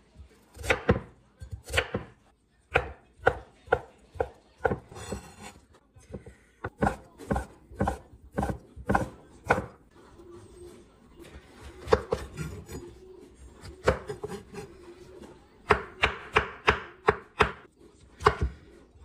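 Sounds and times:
knife chopping on wooden board: 0:06.2 - 0:09.8.

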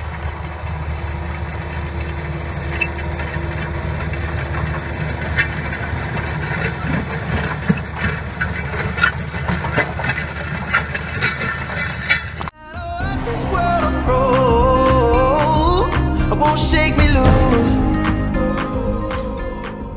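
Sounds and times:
sharp clicks and rattles: 0:00.0 - 0:12.6
tractor engine running: 0:00.0 - 0:19.9.

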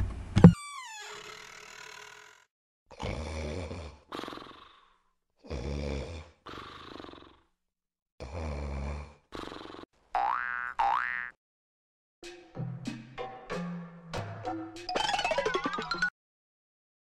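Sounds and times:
man snoring: 0:02.9 - 0:07.6, 0:08.2 - 0:09.9
cartoon boing sound effect: 0:10.2 - 0:11.4.

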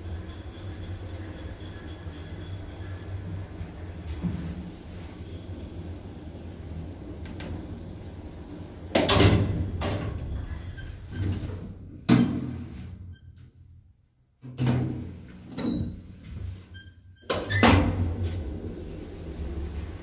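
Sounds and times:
low running hum: 0:00.0 - 0:14.4, 0:16.1 - 0:20.0
lift machinery clunks and thuds: 0:08.9 - 0:13.0.

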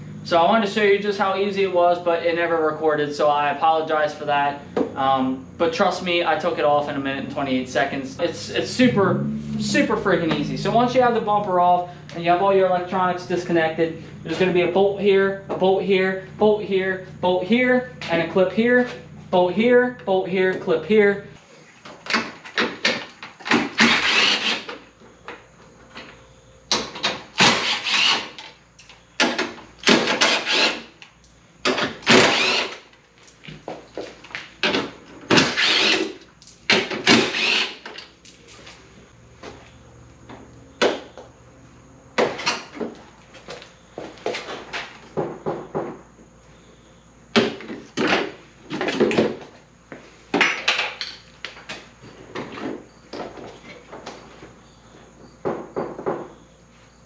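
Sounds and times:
tools and plastic knocking and clattering: 0:21.8 - 0:23.9, 0:24.7 - 0:27.6, 0:28.3 - 0:30.4, 0:31.6 - 0:32.4, 0:34.6 - 0:35.6, 0:36.7 - 0:38.1, 0:44.4 - 0:46.0, 0:47.3 - 0:49.5, 0:50.3 - 0:54.4, 0:55.4 - 0:56.4
cordless drill spinning bolts: 0:23.6 - 0:24.7, 0:27.4 - 0:28.5, 0:30.0 - 0:30.9, 0:32.0 - 0:32.8, 0:35.4 - 0:36.2, 0:37.0 - 0:38.0.

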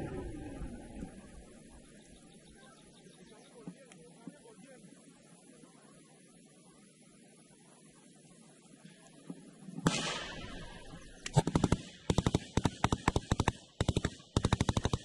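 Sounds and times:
machine gun firing bursts: 0:09.9 - 0:15.0.

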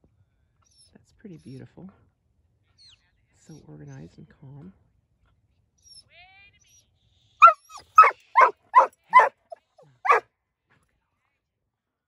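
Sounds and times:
dog barking: 0:07.4 - 0:10.2.

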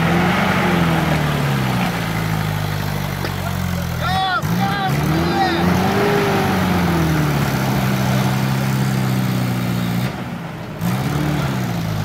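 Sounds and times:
engine revving under load: 0:00.0 - 0:12.0.

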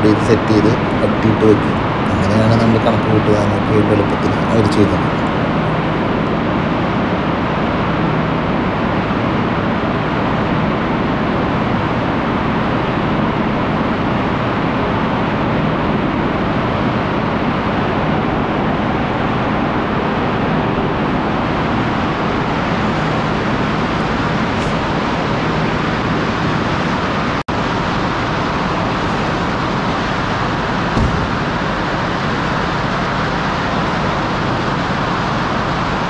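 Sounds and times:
factory machinery din: 0:21.2 - 0:35.8.

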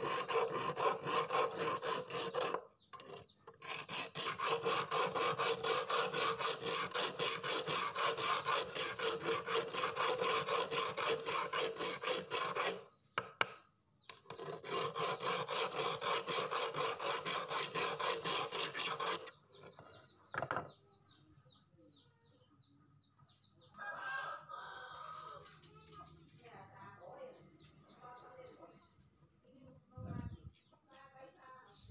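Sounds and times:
file rasping on metal blade: 0:00.0 - 0:12.9, 0:14.1 - 0:19.9.

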